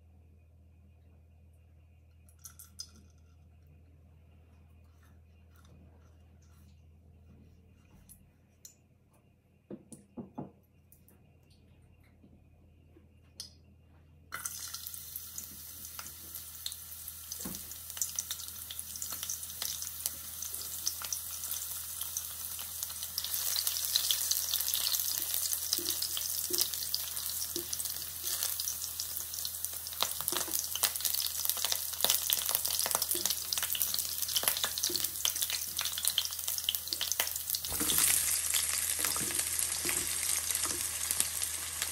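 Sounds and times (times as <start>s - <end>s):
garlic sizzling in hot oil: 14.4s - 41.9s.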